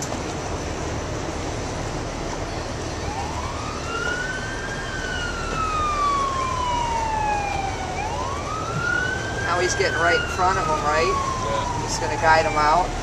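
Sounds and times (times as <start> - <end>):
boat siren wailing: 2.4 - 13.0.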